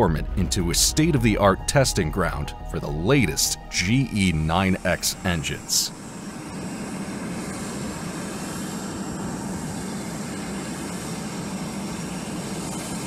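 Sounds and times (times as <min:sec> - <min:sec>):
jet engine running: 0:00.0 - 0:13.0.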